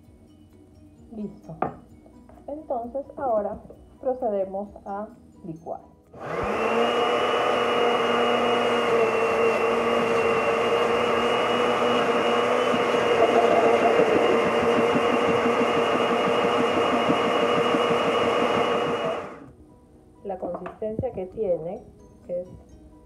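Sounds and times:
blender motor running: 0:06.2 - 0:19.5.

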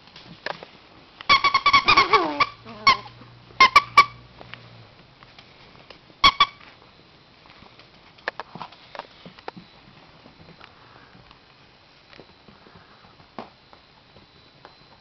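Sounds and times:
dogs squeaking in play: 0:01.3 - 0:04.2.

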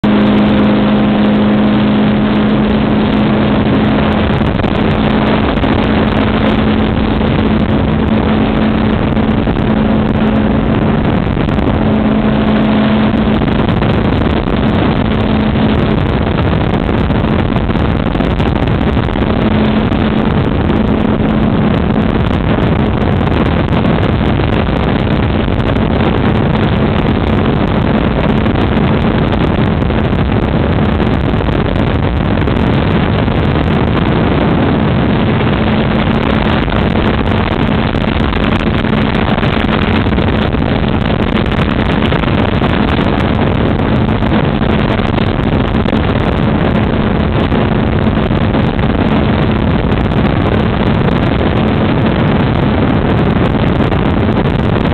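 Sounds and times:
small aircraft engine running: 0:00.0 - 0:54.9
wind noise on microphone: 0:00.0 - 0:54.9.

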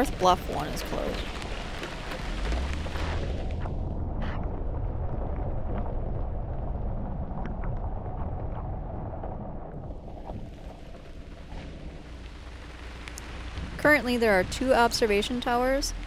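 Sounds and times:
vehicle rolling on wet gravel: 0:00.0 - 0:06.7, 0:10.1 - 0:16.0
rain: 0:00.0 - 0:16.0.

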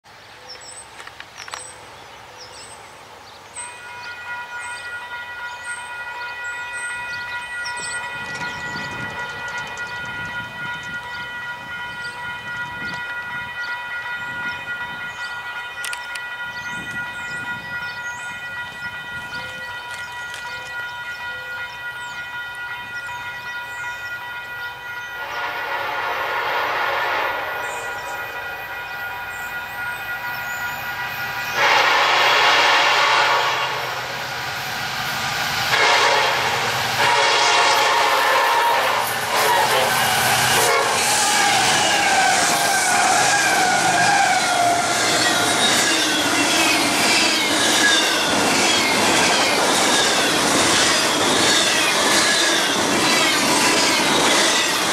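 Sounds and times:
locomotive air horn chord: 0:03.6 - 0:34.2, 0:35.6 - 0:46.2.

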